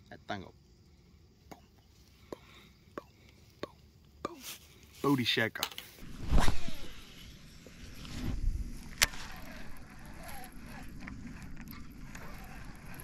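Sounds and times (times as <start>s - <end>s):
fishing rod cast swishing: 6.0s - 7.2s
fishing reel cranking: 8.9s - 13.0s.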